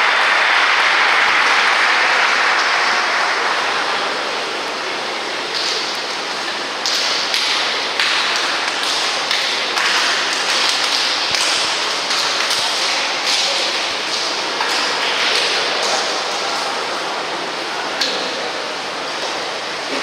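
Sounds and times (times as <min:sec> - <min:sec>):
pool water rushing: 0:00.0 - 0:20.0
slaps on water: 0:05.5 - 0:16.8.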